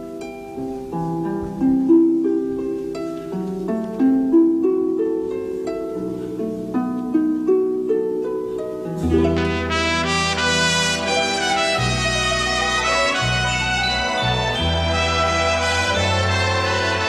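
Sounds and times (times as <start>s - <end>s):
harp broken chords: 3.6s - 17.0s
orchestra with strong bass: 9.0s - 17.0s.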